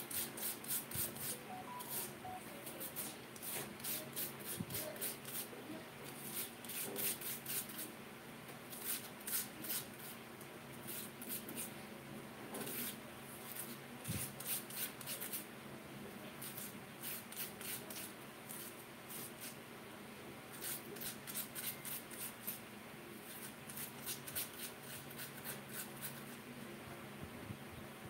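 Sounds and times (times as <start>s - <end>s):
potato being grated by hand: 23.3s - 26.4s.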